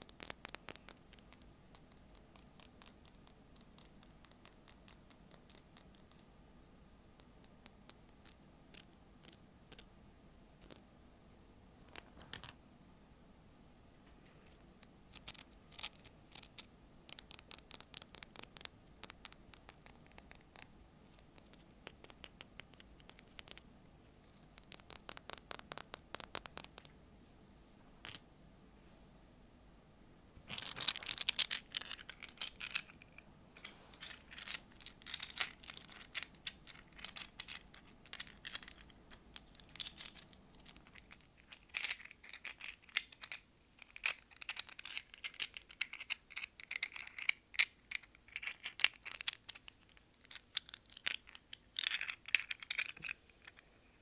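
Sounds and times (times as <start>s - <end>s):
fingers tapping on seashells: 0.0s - 6.2s, 15.1s - 20.7s, 21.4s - 23.7s, 24.4s - 27.0s.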